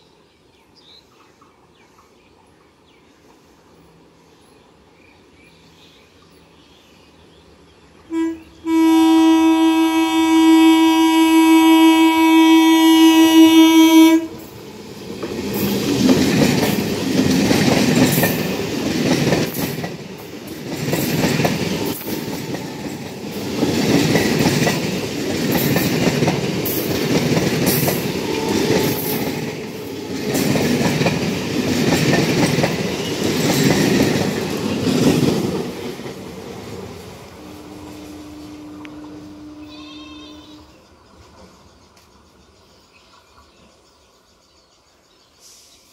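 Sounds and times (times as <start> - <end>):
train horn: 8.1 - 14.5, 27.9 - 29.4, 37.3 - 40.8.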